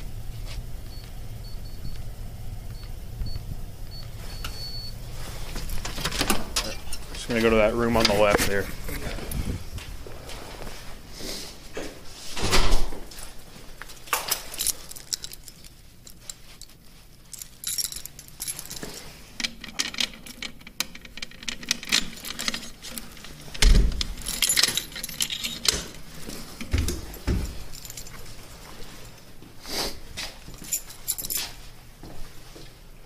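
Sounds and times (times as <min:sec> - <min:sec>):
keys jangling in a lock: 0:05.5 - 0:07.0, 0:14.0 - 0:29.2, 0:30.4 - 0:31.6.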